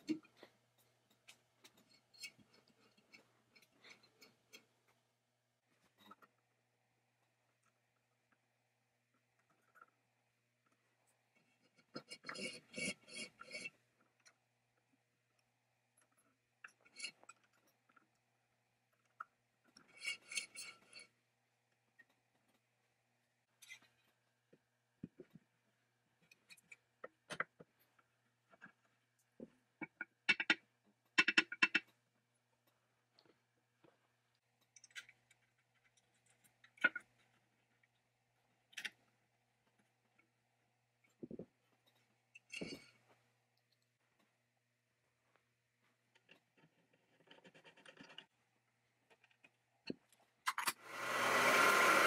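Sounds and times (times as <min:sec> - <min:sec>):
small metal clicks: 0:34.3 - 0:37.4.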